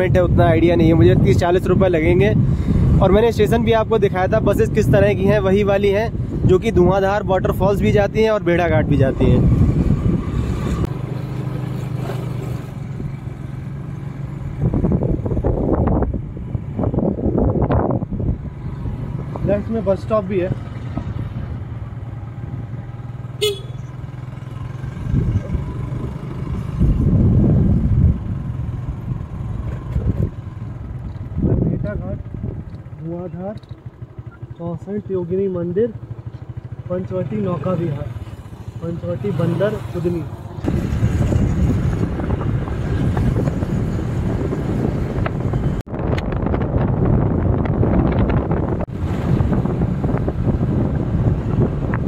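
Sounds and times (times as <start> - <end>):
road and wind noise: 0.0 - 52.0
scooter engine running: 32.2 - 45.8.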